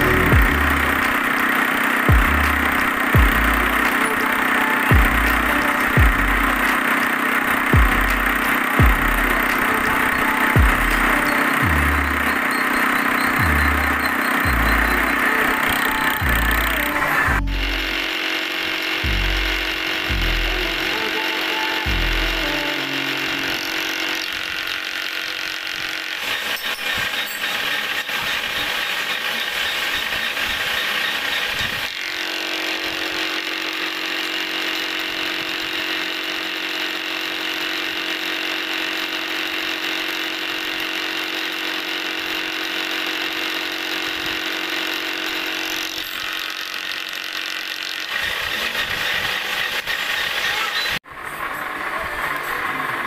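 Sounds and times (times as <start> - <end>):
milling machine humming with whine: 0.0 - 53.0.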